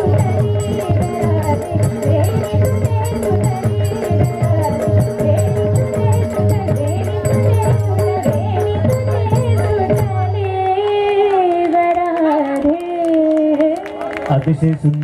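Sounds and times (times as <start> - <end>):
drum and jingling percussion: 0.0 - 12.0
woman singing: 0.0 - 14.0
harmonium: 0.0 - 14.3.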